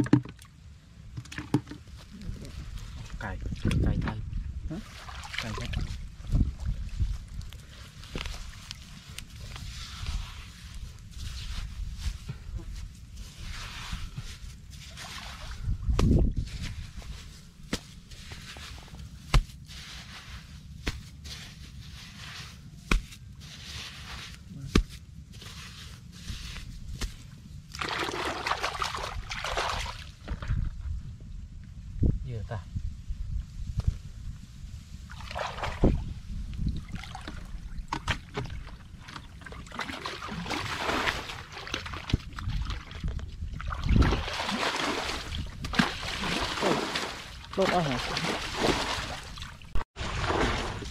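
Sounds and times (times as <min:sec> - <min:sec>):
water sloshing and splashing: 0:00.0 - 0:30.6, 0:35.0 - 0:50.9
hands digging in mud: 0:06.8 - 0:30.0.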